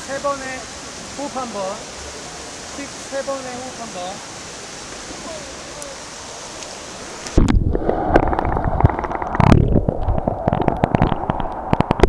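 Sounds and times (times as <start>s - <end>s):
muffled underwater churning: 6.4s - 12.0s
bubbly clicks and pops: 7.3s - 12.0s.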